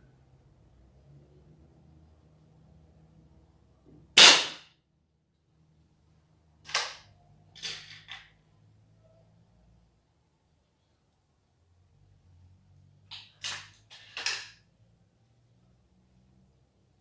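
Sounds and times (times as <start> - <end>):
air rifle shot: 4.2 - 4.7.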